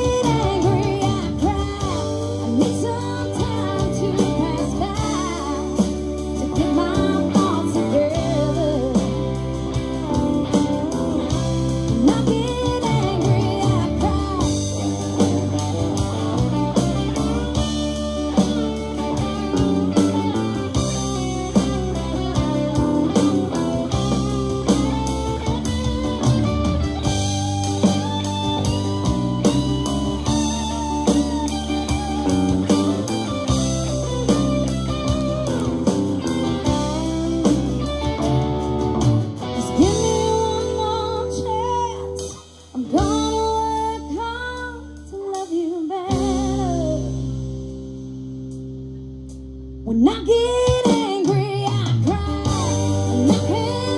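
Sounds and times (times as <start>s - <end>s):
live band playing: 0.0s - 53.9s.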